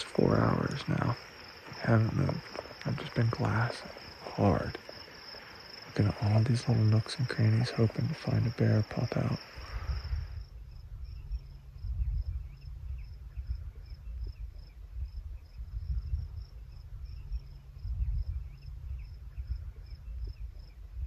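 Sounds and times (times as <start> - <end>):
crickets chirping: 0.0 - 21.0
wind buffeting microphone: 7.6 - 21.0.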